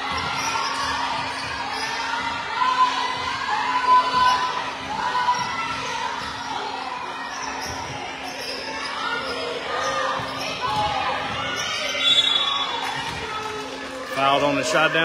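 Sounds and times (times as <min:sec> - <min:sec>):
crowd noise: 0:00.0 - 0:15.0
shoe squeaks: 0:07.2 - 0:13.4.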